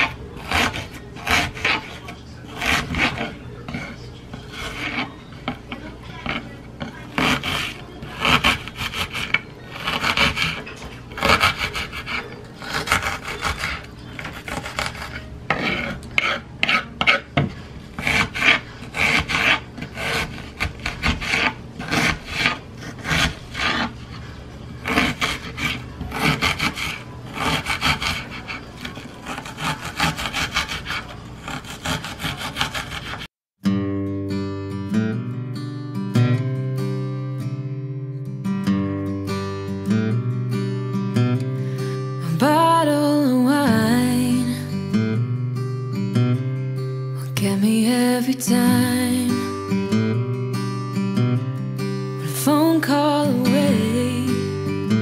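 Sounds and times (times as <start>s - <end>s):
knife chopping on wooden board: 0.0s - 10.6s, 11.2s - 24.0s, 24.9s - 33.3s.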